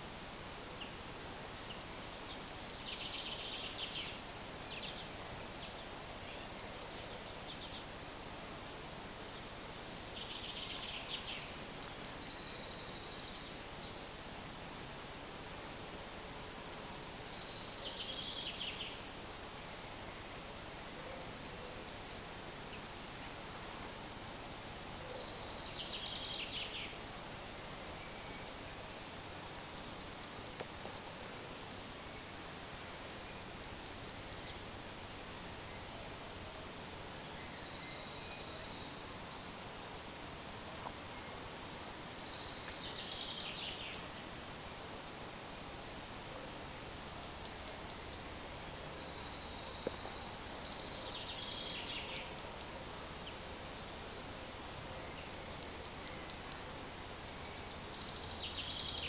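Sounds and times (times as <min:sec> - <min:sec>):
faint steady hiss: 0:00.0 - 0:59.0
songbirds trilling: 0:15.2 - 0:28.6, 0:40.8 - 0:59.0.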